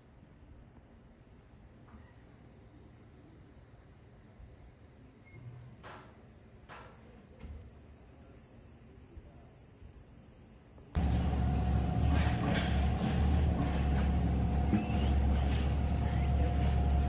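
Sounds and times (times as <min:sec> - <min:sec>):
insects chirring: 0:00.7 - 0:17.0
loud low rumble: 0:11.0 - 0:17.0.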